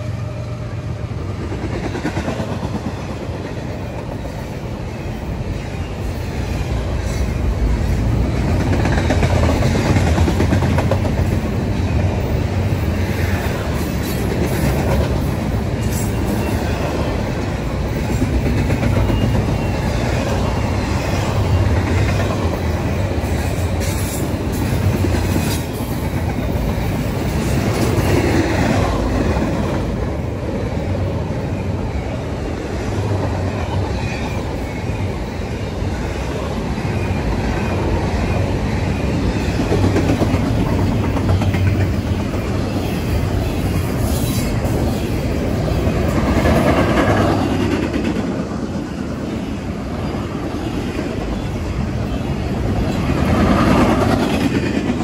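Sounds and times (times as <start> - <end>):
steel wheels rumbling on rails: 0.0 - 55.0.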